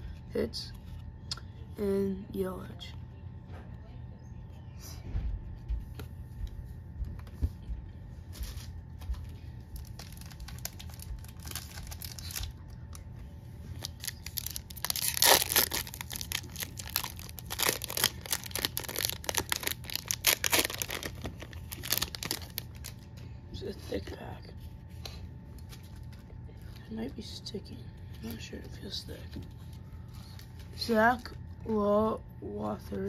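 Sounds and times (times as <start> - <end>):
foil wrapper crinkling and tearing: 8.3 - 13.0, 13.7 - 23.1.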